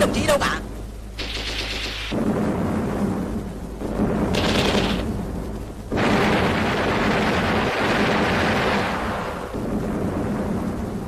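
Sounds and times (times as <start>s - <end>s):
continuous gunfire: 1.2s - 9.6s
booming explosions: 1.2s - 11.0s.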